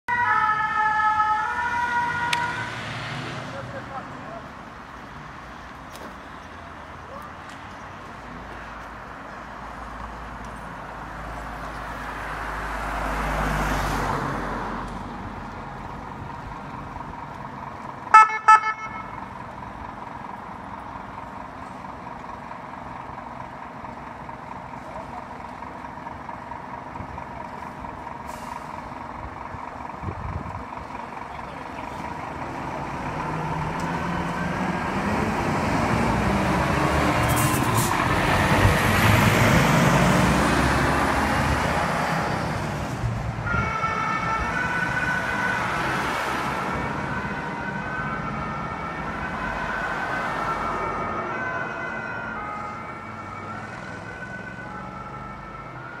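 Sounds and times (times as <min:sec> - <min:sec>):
two-tone siren: 0:00.1 - 0:02.8, 0:18.1 - 0:19.2, 0:43.4 - 0:56.0
fire engine diesel engine: 0:00.1 - 0:56.0.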